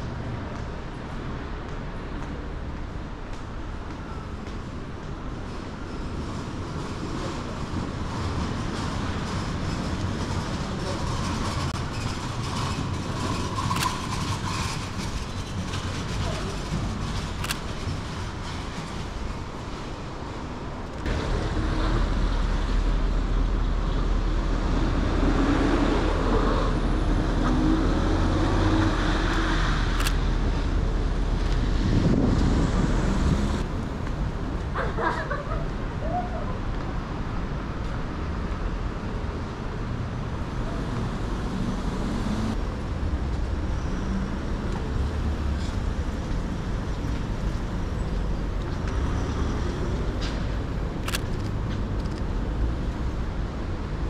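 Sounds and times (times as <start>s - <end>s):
passing traffic rumble: 0.0s - 54.0s.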